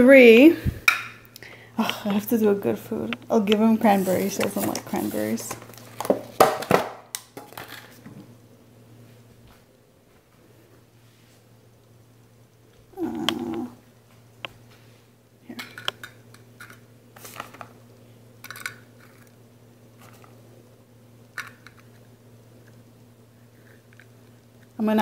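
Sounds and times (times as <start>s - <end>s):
steady low hum: 0.0s - 6.4s, 7.0s - 25.0s
plastic bag rustling: 3.8s - 6.6s.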